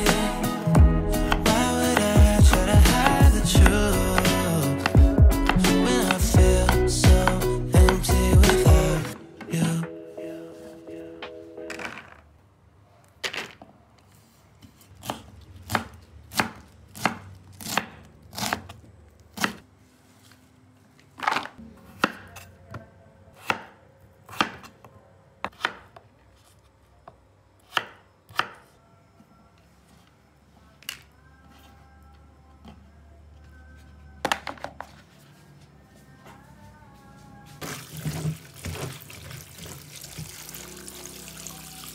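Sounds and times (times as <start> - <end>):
knife chopping on wooden board: 25.5 - 26.0, 27.6 - 28.6.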